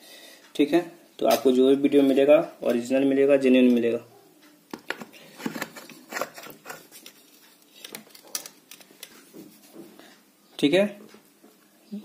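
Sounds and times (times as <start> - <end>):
light clicks and scrapes of fan parts: 5.2 - 10.2.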